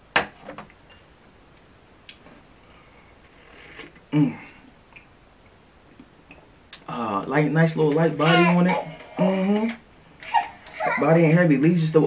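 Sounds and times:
person sighing ahh: 3.7 - 4.6.

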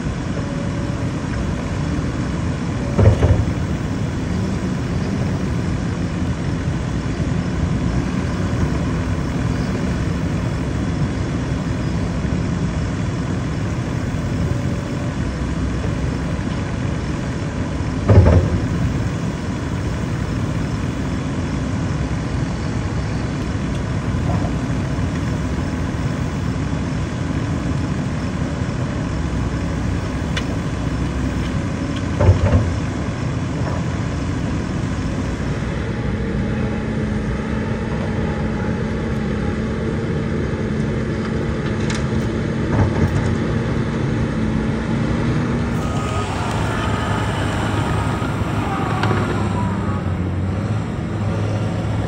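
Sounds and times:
diesel machinery running: 0.0 - 52.0
steady hum: 45.5 - 52.0.

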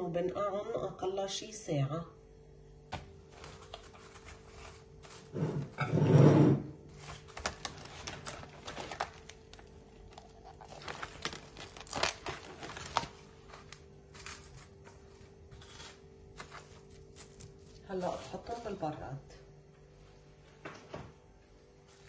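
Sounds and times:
cling film crinkling: 6.9 - 15.1.

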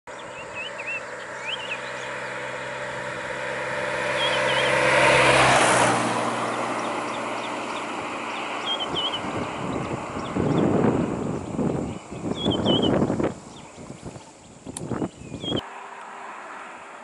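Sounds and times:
truck driving past: 0.1 - 11.6, 15.6 - 17.0
birds chirping: 0.1 - 15.6.

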